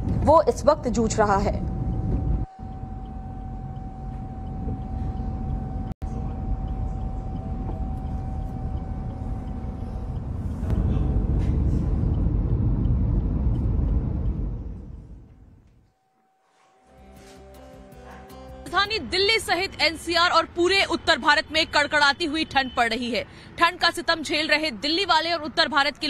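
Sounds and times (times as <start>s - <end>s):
road traffic rumble: 0.0s - 15.5s, 18.7s - 26.0s
faint steady whine: 0.2s - 16.8s.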